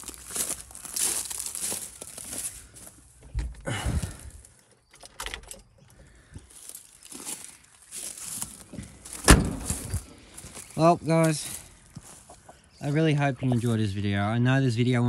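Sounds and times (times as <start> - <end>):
footsteps crunching dry leaves: 0.0 - 3.2, 6.4 - 13.8
low thumps: 9.1 - 10.1.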